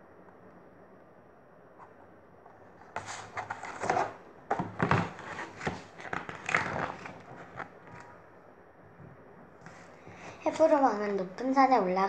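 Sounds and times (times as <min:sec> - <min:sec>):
rustling handling noise: 0:01.7 - 0:08.2, 0:09.5 - 0:11.1.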